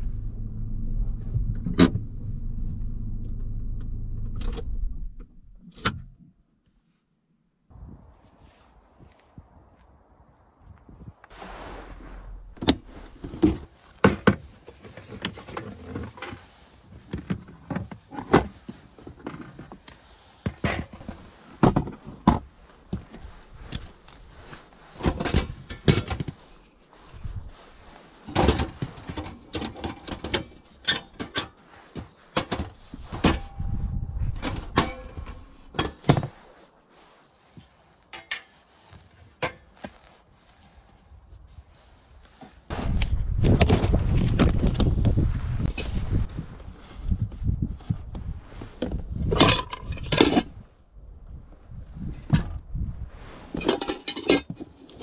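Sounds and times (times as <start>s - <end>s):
gear knocking and clunking: 0.0s - 5.4s.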